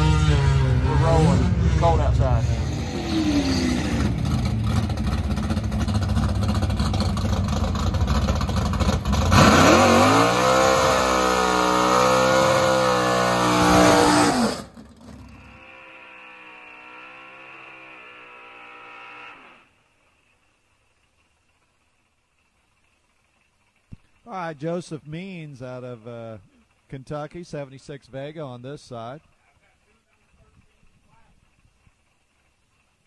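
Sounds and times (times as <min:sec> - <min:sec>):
drag car engine revving: 0:00.0 - 0:19.7.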